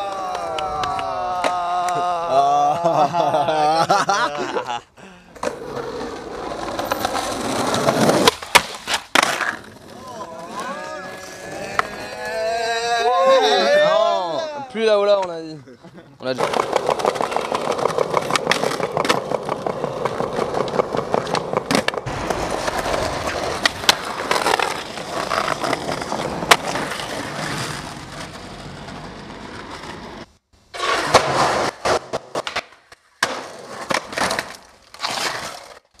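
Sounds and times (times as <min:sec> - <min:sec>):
skateboard clacking on ground: 0:00.0 - 0:02.0, 0:16.4 - 0:27.2, 0:30.8 - 0:35.8
skateboard wheels rolling on pavement: 0:00.0 - 0:03.9, 0:05.3 - 0:15.5, 0:16.2 - 0:36.0.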